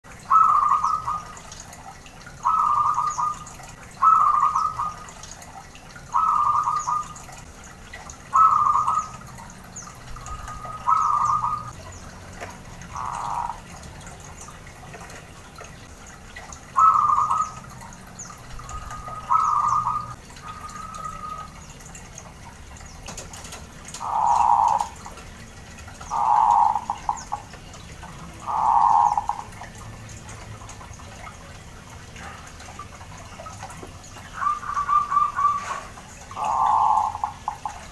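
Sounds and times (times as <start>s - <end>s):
dove cooing: 0.2s - 1.5s, 2.3s - 5.2s, 6.1s - 7.4s, 8.2s - 11.8s, 12.8s - 13.8s, 16.7s - 17.8s, 18.6s - 21.5s, 23.9s - 25.1s, 26.1s - 27.4s, 28.4s - 29.7s, 34.2s - 37.9s.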